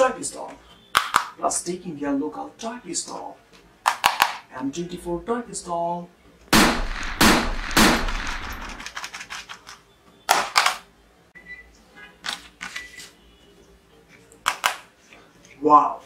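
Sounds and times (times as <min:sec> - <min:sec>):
plastic toy gun knocks: 0:03.9 - 0:04.4
gunshot-like bangs: 0:06.6 - 0:08.8.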